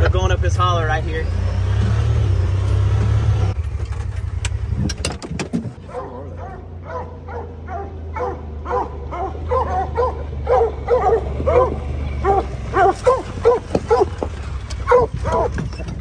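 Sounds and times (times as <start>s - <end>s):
engine humming low: 0.0s - 16.0s
hounds barking: 5.9s - 15.7s.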